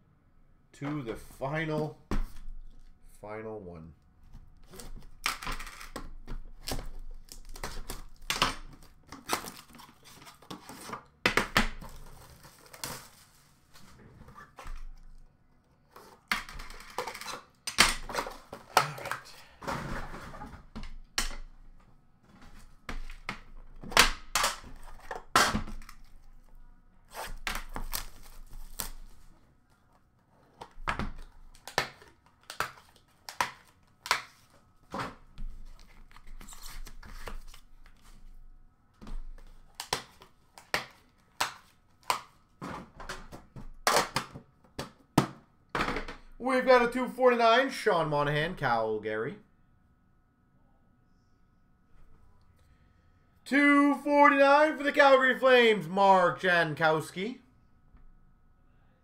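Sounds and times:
packaging tearing and crinkling: 27.2s - 29.2s.

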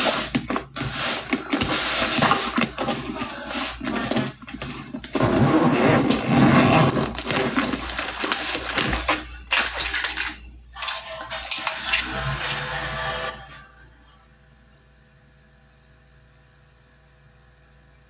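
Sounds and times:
handling of items: 0.0s - 12.1s.

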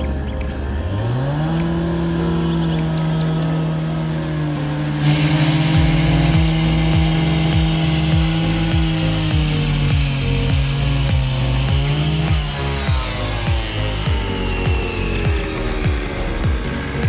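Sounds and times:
cut-off saw grinding concrete: 0.6s - 17.0s
music with a steady beat: 4.7s - 17.0s.

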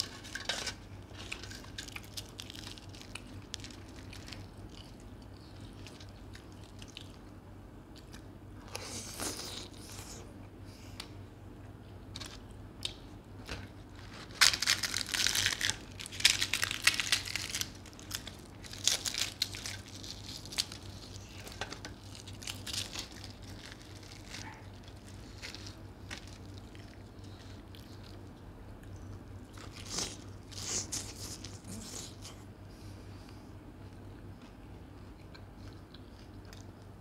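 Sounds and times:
fried bread crackling as torn: 0.0s - 4.8s, 12.1s - 27.0s.

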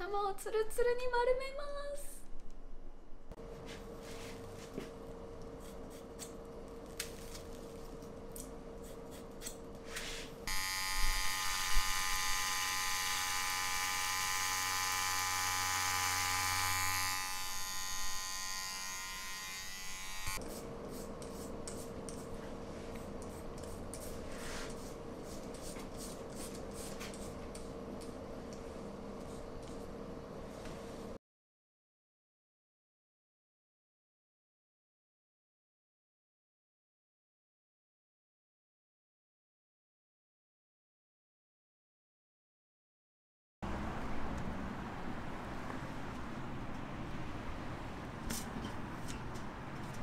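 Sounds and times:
scissors snipping hair: 8.3s - 9.6s
electric hair clipper buzzing: 10.5s - 20.4s
razor scraping scalp: 10.5s - 22.3s.

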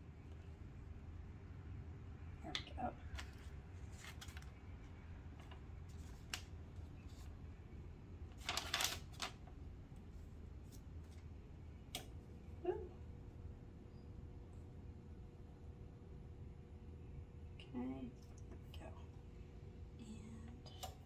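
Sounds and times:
paper rustling: 3.1s - 4.6s, 5.4s - 7.4s, 8.3s - 11.3s.

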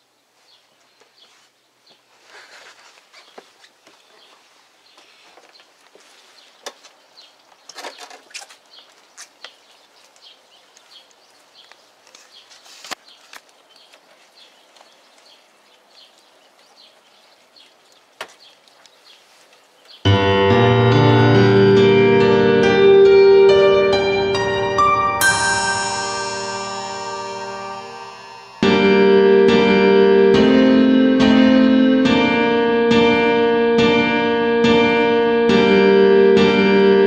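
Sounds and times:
faint background noise: 0.0s - 22.4s
digital piano chords: 20.1s - 37.0s.

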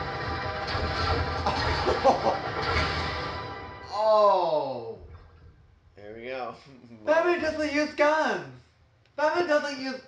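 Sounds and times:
film soundtrack music: 0.0s - 5.8s.

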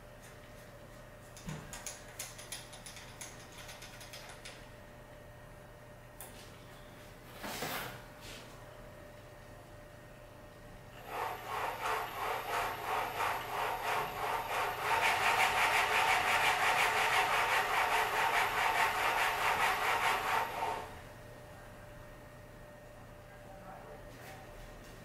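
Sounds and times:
machine motor rhythmic chatter: 10.9s - 21.0s.

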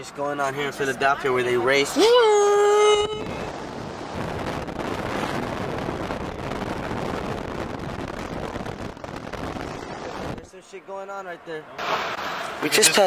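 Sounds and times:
road noise inside car: 0.0s - 8.9s
wind buffeting microphone: 2.4s - 10.5s.

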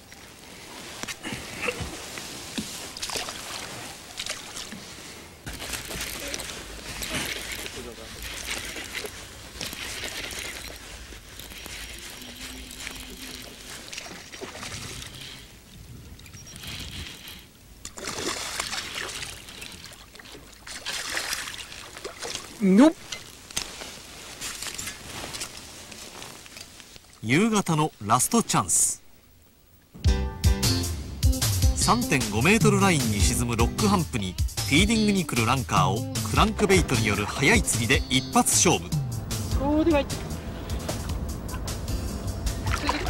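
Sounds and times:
water splashing against boat: 0.0s - 27.2s, 36.2s - 43.0s.

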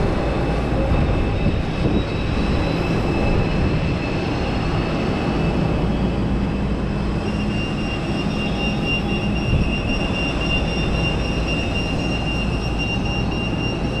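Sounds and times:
high steady whine: 0.0s - 14.0s
jet turbine rumble: 0.0s - 14.0s.

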